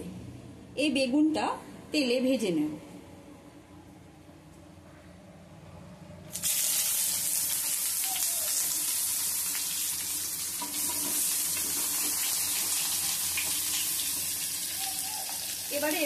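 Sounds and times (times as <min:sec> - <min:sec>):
vegetables sizzling in hot oil: 0:06.3 - 0:16.0.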